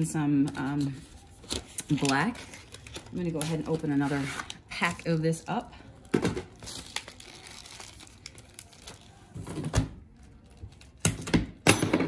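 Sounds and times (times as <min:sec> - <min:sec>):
plastic wrap tearing and crinkling: 0:01.2 - 0:11.0.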